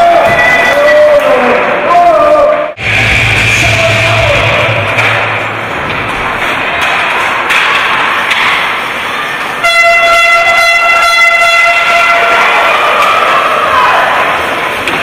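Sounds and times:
arena crowd noise: 0.0s - 15.0s
air horn blast: 9.6s - 12.3s.

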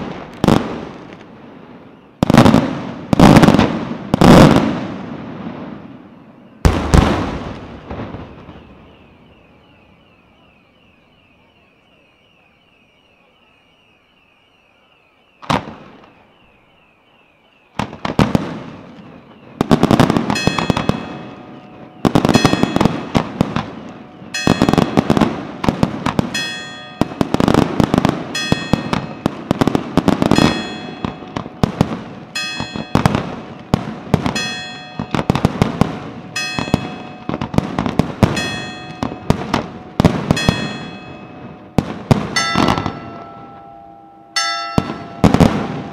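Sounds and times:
firework bangs: 0.0s - 12.0s, 14.8s - 45.9s
fireworks crackling: 0.0s - 45.9s
steady ringing tones: 7.8s - 45.9s.

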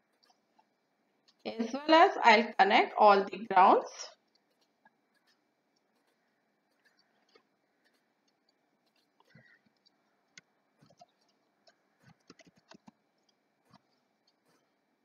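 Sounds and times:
computer mouse clicks: 6.0s - 14.7s
keyboard keystrokes: 12.0s - 12.9s.

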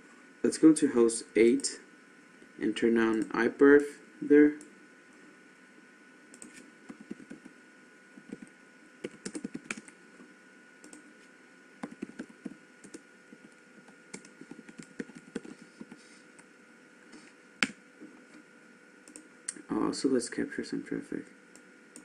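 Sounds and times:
computer keyboard typing: 6.4s - 7.5s, 8.2s - 10.0s, 11.8s - 16.0s, 19.1s - 19.3s.

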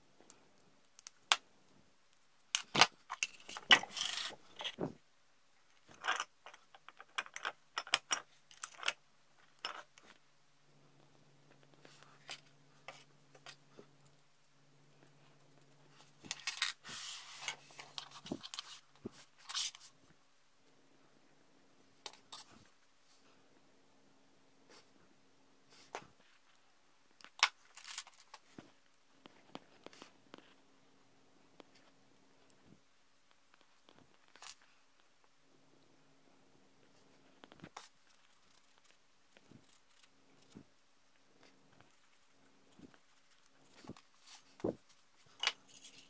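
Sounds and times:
faint low hum: 0.0s - 46.0s
plastic parts clicking and clinking: 2.5s - 4.8s, 5.7s - 10.2s, 16.1s - 16.8s.

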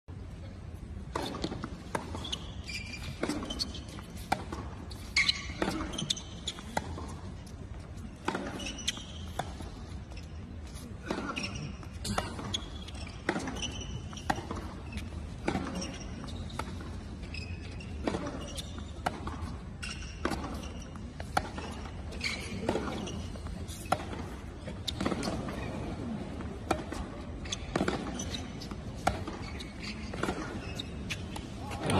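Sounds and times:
shoes squeaking on court: 0.2s - 31.9s.

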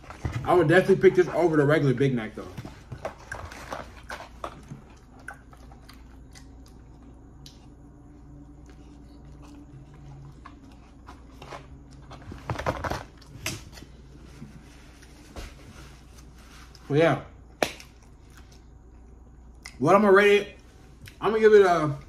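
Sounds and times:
low steady hum: 0.0s - 22.0s
man chewing with wet mouth clicks: 4.5s - 10.7s, 17.6s - 19.8s.

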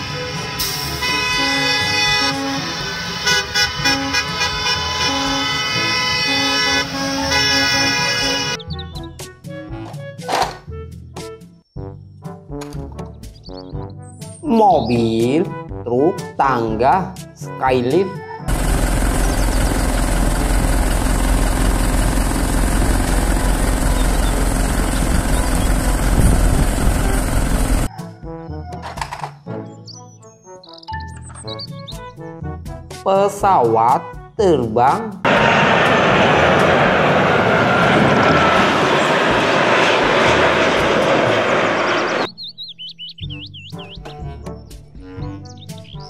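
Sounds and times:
bus horn honking: 0.0s - 8.6s
hydraulic boom hum: 18.5s - 27.9s
truck engine running: 18.5s - 27.9s.

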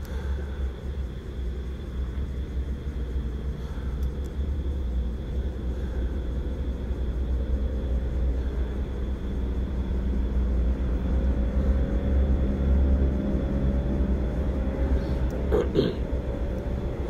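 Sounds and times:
faint high whine: 0.0s - 17.0s
low engine-like drone: 0.0s - 17.0s.

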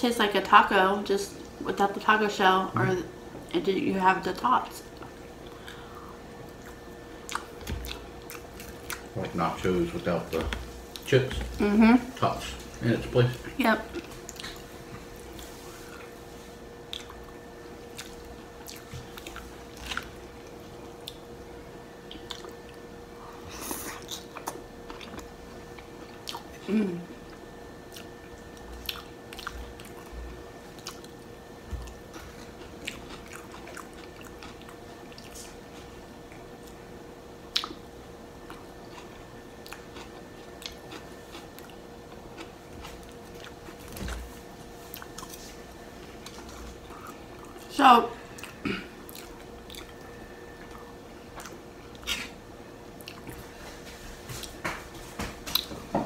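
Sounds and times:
faint hum: 0.0s - 56.0s
person chewing: 6.5s - 9.1s, 13.9s - 16.2s, 16.9s - 17.3s, 17.9s - 21.3s, 22.1s - 36.8s, 37.5s - 37.8s, 38.4s - 47.7s, 48.3s - 52.4s, 53.0s - 53.5s, 55.5s - 55.8s.

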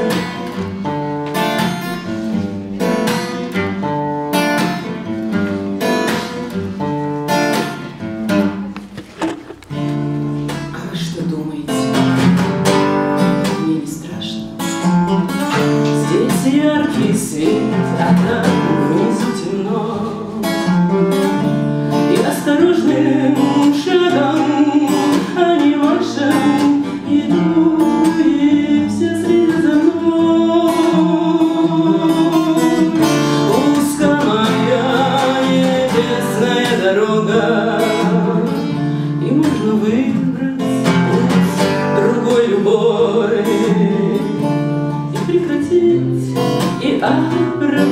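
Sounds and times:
acoustic guitar strumming: 0.0s - 47.9s
woman singing: 13.3s - 14.6s, 15.5s - 20.8s, 21.9s - 47.9s.

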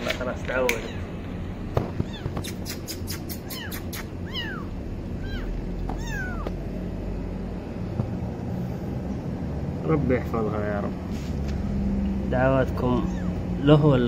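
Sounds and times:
kitten mewing: 1.9s - 6.6s.

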